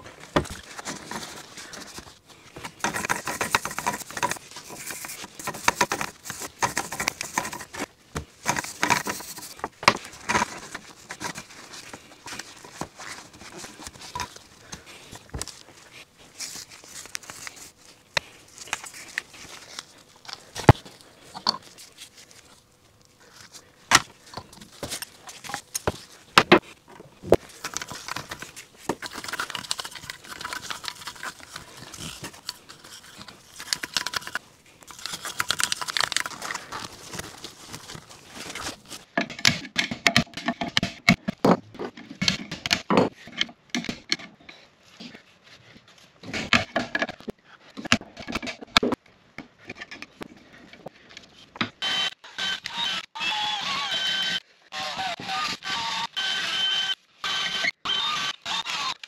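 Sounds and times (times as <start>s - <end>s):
hand brush scrubbing: 0.6s - 39.0s.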